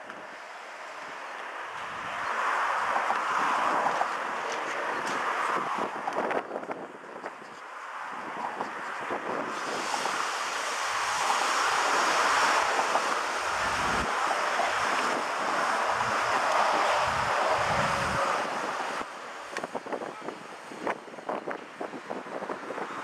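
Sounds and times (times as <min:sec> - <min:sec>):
steam locomotive hissing: 0:09.2 - 0:22.9.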